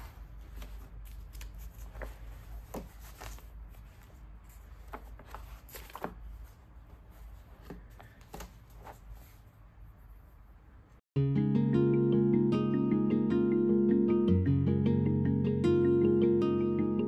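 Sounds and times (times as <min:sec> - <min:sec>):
book pages rustling: 0:00.0 - 0:09.6.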